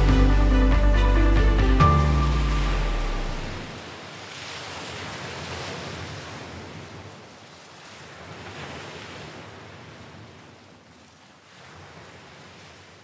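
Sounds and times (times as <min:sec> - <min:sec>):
low music note: 0:00.0 - 0:03.7
sea waves washing: 0:00.0 - 0:09.0.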